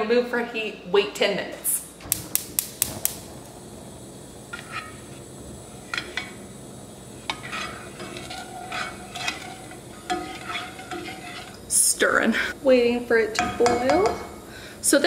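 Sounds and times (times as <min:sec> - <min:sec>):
spoon scraping saucepan: 0:04.5 - 0:12.6.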